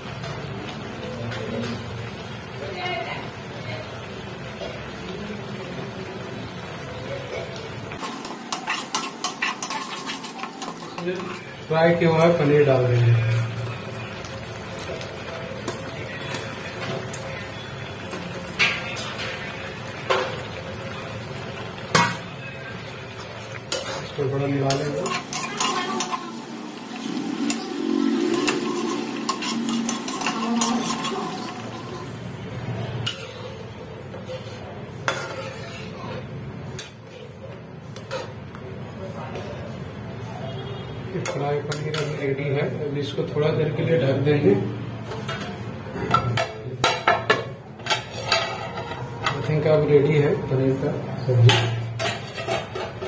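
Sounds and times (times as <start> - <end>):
spices sizzling in a pan: 1.7 - 33.2
spatula scraping a metal pan: 8.0 - 11.6, 23.7 - 26.4, 27.4 - 32.0, 34.2 - 36.1, 47.8 - 49.8, 52.0 - 53.0.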